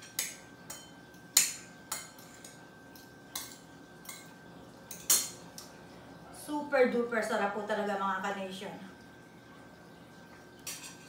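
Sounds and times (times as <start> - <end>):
cutlery clinking on a plate: 4.9 - 5.4, 10.6 - 11.0.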